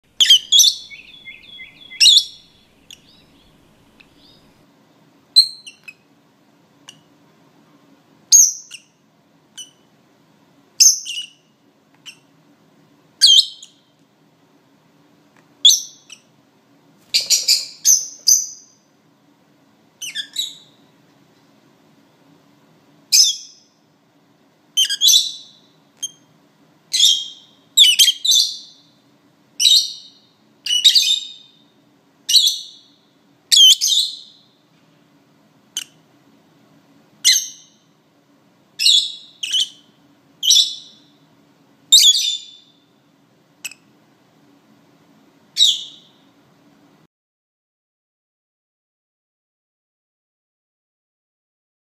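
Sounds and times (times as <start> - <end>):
lovebird shrill chirping: 0.1 - 4.5, 10.8 - 11.4, 17.2 - 18.8, 20.0 - 20.8, 24.8 - 26.3, 27.0 - 28.8, 29.6 - 31.6, 38.8 - 41.1, 41.9 - 42.8, 45.6 - 46.2.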